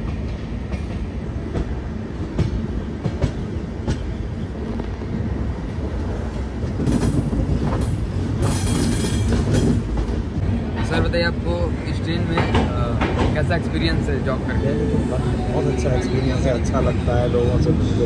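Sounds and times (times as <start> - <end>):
train coaches rumbling: 0.0 - 18.0.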